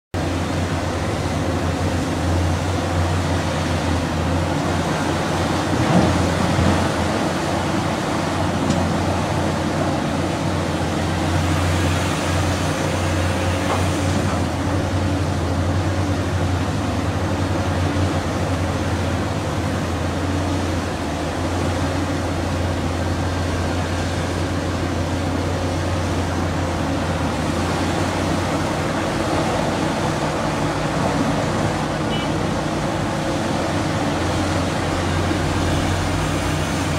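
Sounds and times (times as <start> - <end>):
excavator diesel engine running: 0.2 - 36.9.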